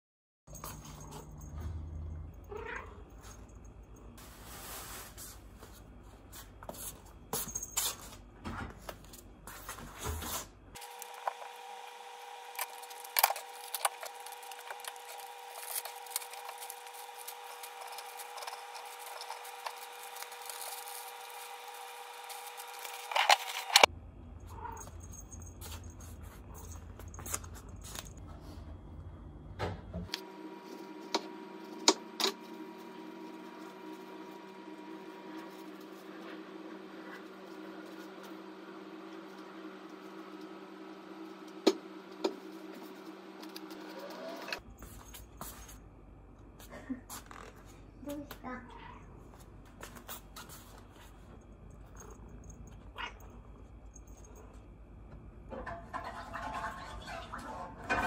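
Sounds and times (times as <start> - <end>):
appliance humming: 0.5 - 58.0
utensils and dishes clicking: 12.5 - 23.9.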